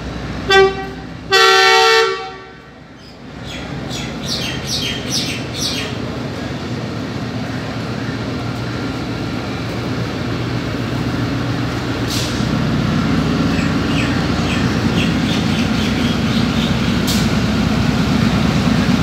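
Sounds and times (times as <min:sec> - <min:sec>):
diesel locomotive engine: 0:00.0 - 0:19.0.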